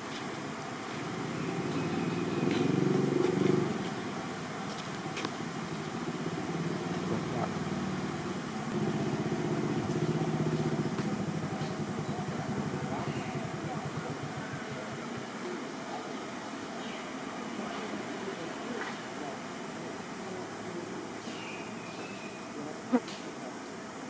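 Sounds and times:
vehicle engine running: 0.0s - 15.7s.

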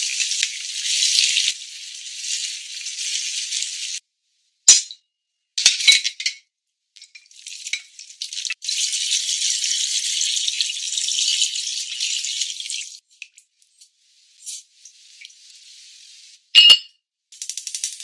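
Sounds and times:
water hissing on hot sauce: 0.0s - 4.0s, 7.3s - 16.5s.

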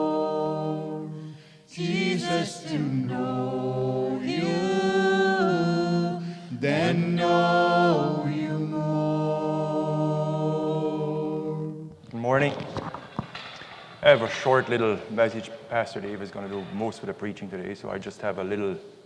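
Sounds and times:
group singing a cappella: 0.0s - 12.0s.

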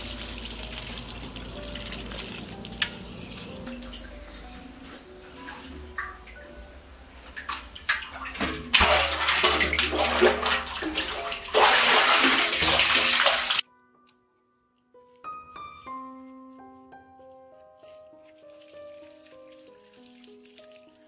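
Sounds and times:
soft background music plucked notes: 0.0s - 11.6s, 13.6s - 21.0s
bucket splashing into well water: 7.4s - 13.6s.

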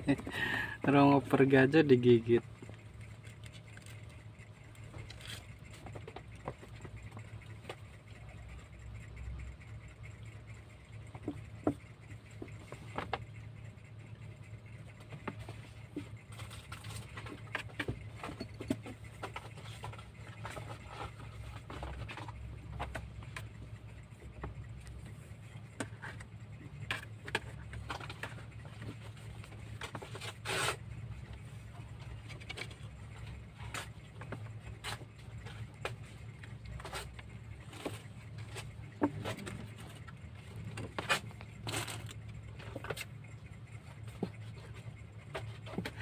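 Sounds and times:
low hum: 0.0s - 46.0s
kitten claws scratching cardboard: 25.8s - 43.1s.

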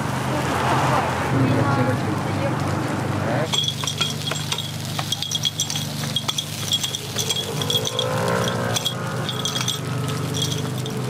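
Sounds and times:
metal pick tapping a pan: 3.5s - 11.0s.

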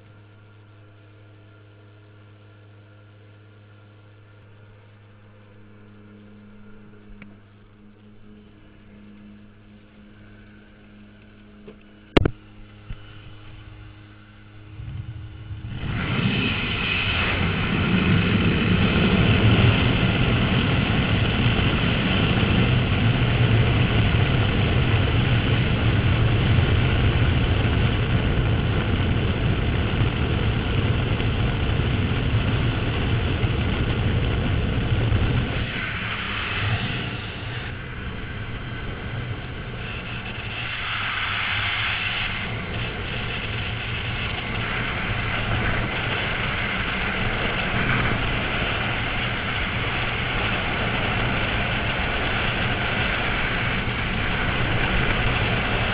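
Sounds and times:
plane engine drone: 0.0s - 55.9s
sharp click: 11.7s - 13.0s
rush of wind: 12.1s - 55.9s.

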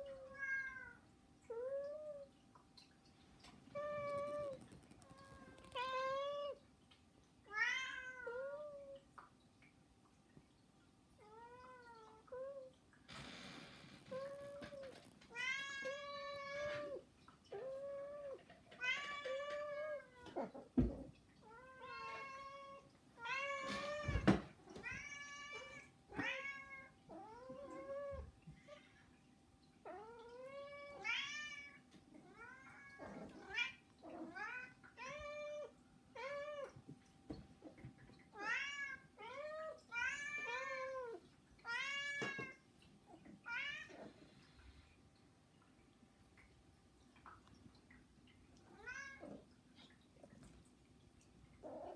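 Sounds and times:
cats meowing: 3.6s - 6.7s, 14.0s - 28.3s, 37.7s - 44.2s.

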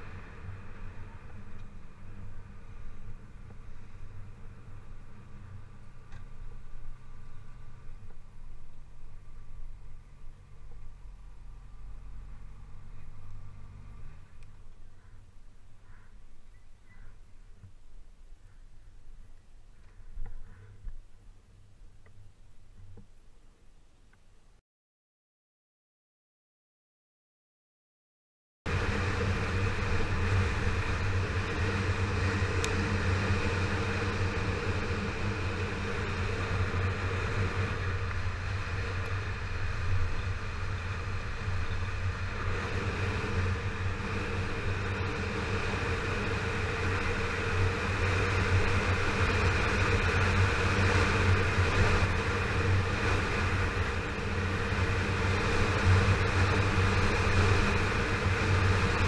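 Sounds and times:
road noise: 0.0s - 24.6s, 28.7s - 59.0s
motorcycle engine running: 28.7s - 59.0s.

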